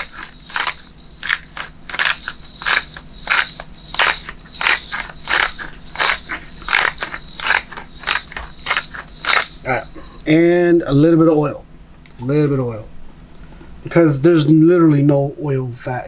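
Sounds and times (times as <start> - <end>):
pepper grinder crunching peppercorns: 0.0 - 10.4.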